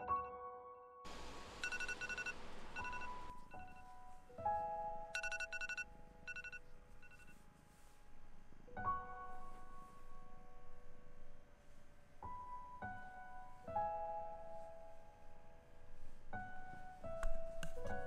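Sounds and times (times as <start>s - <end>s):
soft piano music: 0.0s - 18.0s
rustling hiss: 1.1s - 3.6s.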